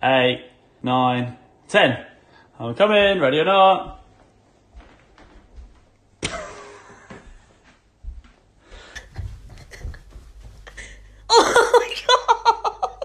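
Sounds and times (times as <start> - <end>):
footsteps: 2.8 - 11.3.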